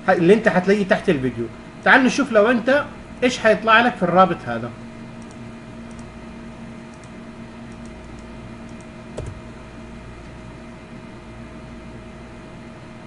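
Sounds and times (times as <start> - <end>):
steady electrical hum: 0.0 - 13.0
computer mouse clicks: 5.2 - 6.1, 6.9 - 9.4.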